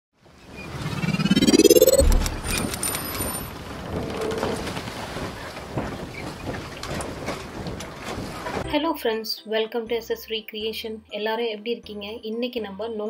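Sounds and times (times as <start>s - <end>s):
rising whoosh: 0.6s - 3.0s.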